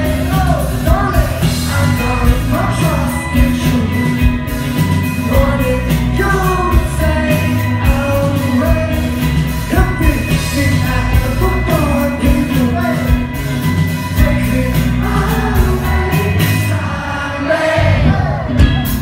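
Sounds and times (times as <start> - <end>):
bass guitar: 0.0 - 19.0
man singing: 0.0 - 19.0
steady drum beat: 0.0 - 19.0.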